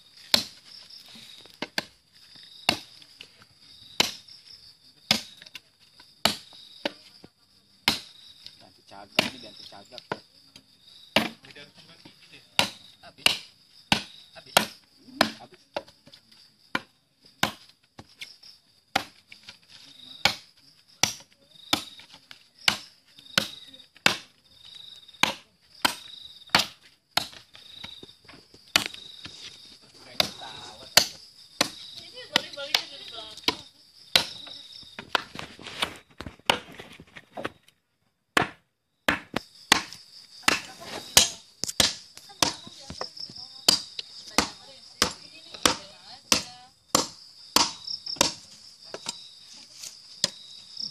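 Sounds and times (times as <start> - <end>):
insects trilling: 0.0 - 50.9
knife chopping into wooden plank: 38.4 - 42.6.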